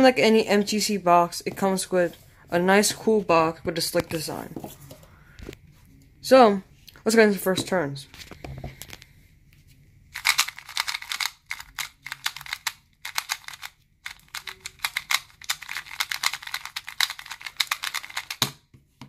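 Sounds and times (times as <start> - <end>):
puzzle cube plastic clicks: 10.2 - 18.6.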